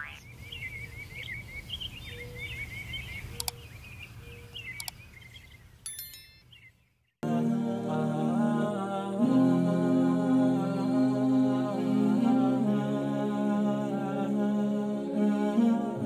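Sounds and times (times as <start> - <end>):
birds chirping: 0.0 - 7.2
sharp click: 3.4 - 3.6.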